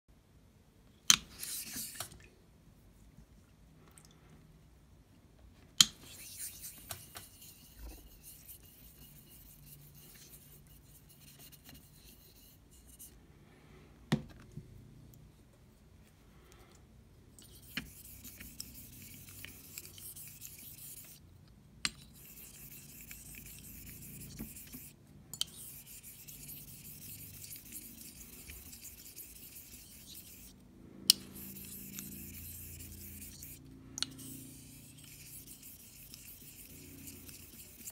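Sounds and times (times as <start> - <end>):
razor strokes on whetstone: 6.0 - 13.1, 17.4 - 21.2, 22.0 - 37.9.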